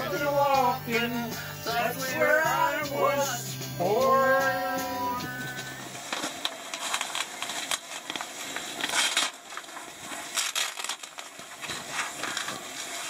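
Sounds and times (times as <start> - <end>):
rustling and crinkling: 6.0 - 13.0.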